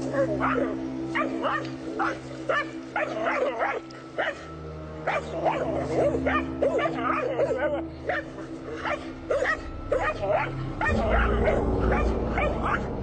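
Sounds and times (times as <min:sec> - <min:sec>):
dogs barking: 0:00.0 - 0:13.0
steady low hum: 0:09.6 - 0:13.0.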